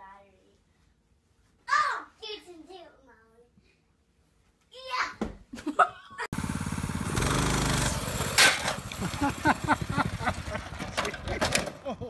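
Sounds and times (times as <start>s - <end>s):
small engine revving: 6.4s - 11.7s
bike crashing onto asphalt: 7.7s - 12.0s.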